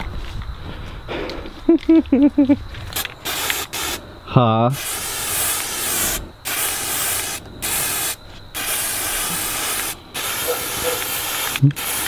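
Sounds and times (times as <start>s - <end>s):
spray paint can hissing: 2.9s - 4.0s, 4.8s - 12.0s.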